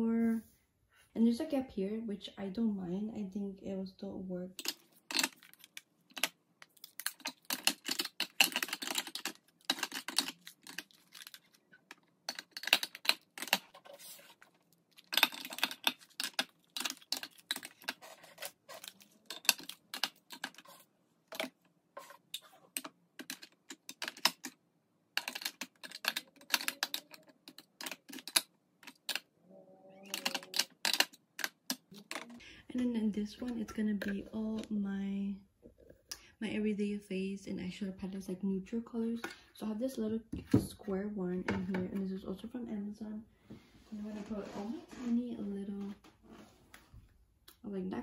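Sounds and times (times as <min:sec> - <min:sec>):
plastic compacts clicking on acrylic: 0:04.6 - 0:13.8, 0:15.0 - 0:21.6, 0:22.7 - 0:24.6, 0:25.2 - 0:29.3, 0:30.0 - 0:32.4.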